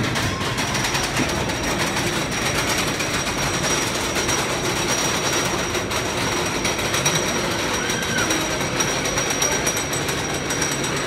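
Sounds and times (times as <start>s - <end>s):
roller coaster lift chain clattering: 0.0s - 11.0s.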